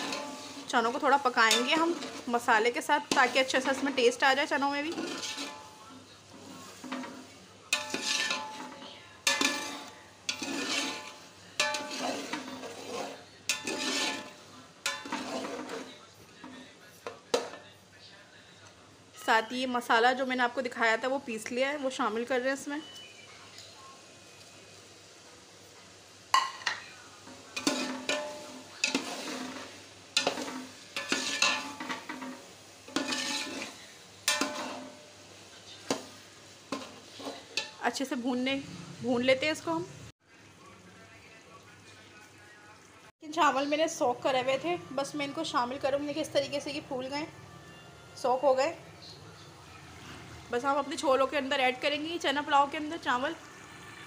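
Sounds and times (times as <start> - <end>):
wet scraping of stirring: 0.0 - 16.6, 27.5 - 35.0, 35.8 - 37.8
spoon clanking against pot: 1.4 - 2.3, 4.9 - 5.8, 6.8 - 15.9, 26.3 - 26.9, 27.5 - 35.0.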